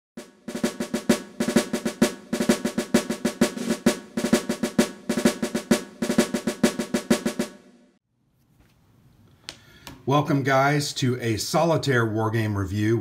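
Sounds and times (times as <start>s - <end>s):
snare drumming: 0.2s - 7.8s.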